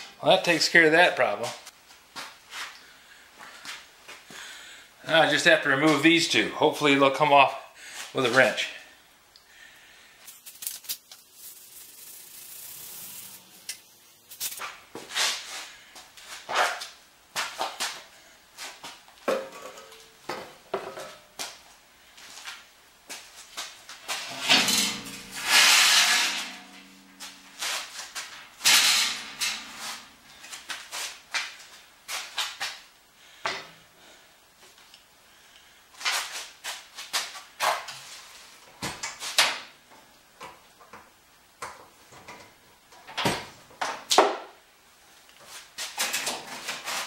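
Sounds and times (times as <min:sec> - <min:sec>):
metal scrape: 0:10.3 - 0:15.7, 0:24.0 - 0:31.2
metal tools clanking on workbench: 0:24.2 - 0:27.8
metallic ring: 0:24.2 - 0:30.6.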